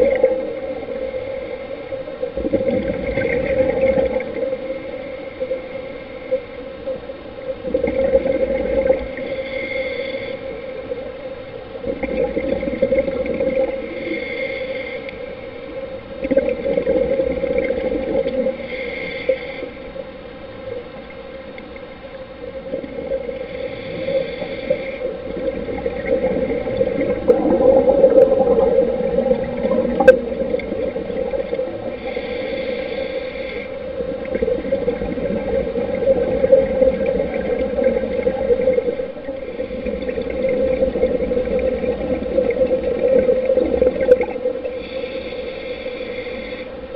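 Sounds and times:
steady low hum: 0:00.0 - 0:46.9
scuba regulator bubbly exhalations: 0:16.2 - 0:18.5, 0:25.2 - 0:31.9, 0:34.1 - 0:44.7.

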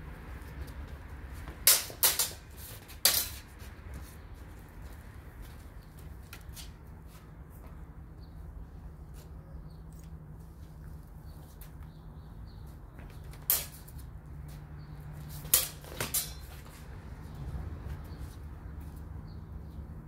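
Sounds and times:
swords clashing and ringing: 0:15.5 - 0:16.5.

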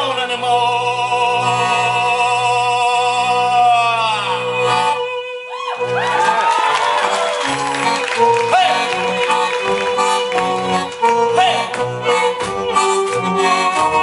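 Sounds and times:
accordion drone: 0:00.0 - 0:14.0
violin playing fast runs: 0:05.9 - 0:14.0.

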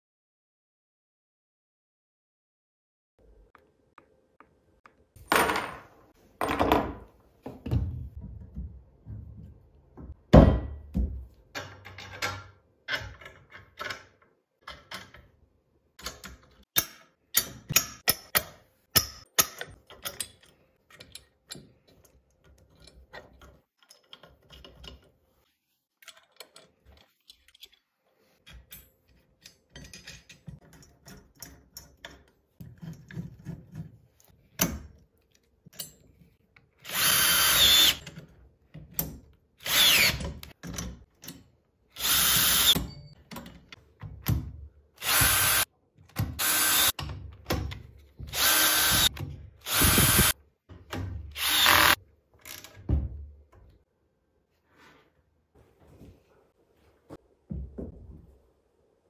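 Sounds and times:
power drill bursts: 0:36.9 - 0:38.0, 0:39.6 - 0:40.2, 0:42.0 - 0:42.8, 0:45.0 - 0:45.6, 0:46.4 - 0:46.9, 0:48.3 - 0:50.4, 0:51.4 - 0:52.0.

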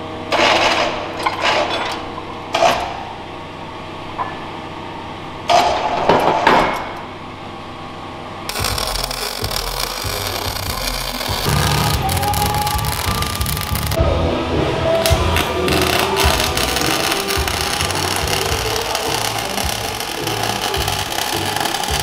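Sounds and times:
background music: 0:08.5 - 0:22.0.

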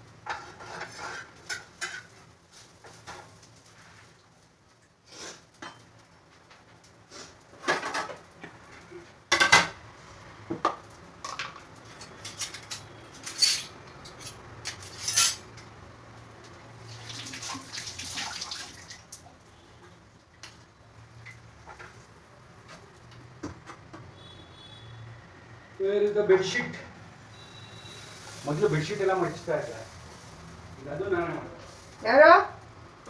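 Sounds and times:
spatula scraping metal pan: 0:00.2 - 0:02.2.

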